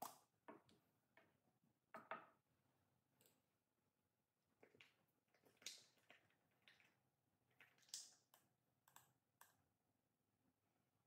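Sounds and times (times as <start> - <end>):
soft clicks and wet taps: 7.6 - 9.7.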